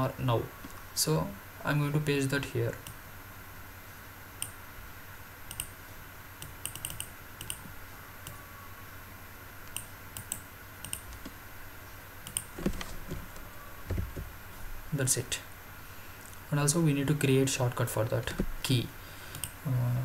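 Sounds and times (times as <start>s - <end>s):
laptop keys clicking: 6.4s - 7.7s, 9.7s - 11.3s, 12.2s - 12.8s.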